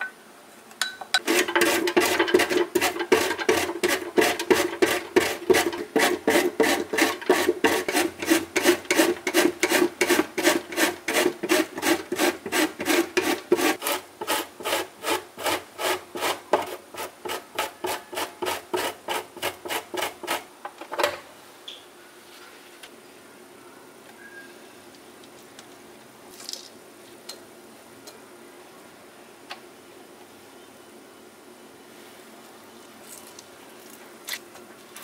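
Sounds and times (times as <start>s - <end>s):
vegetable slicer rasping strokes: 1.2s - 20.5s.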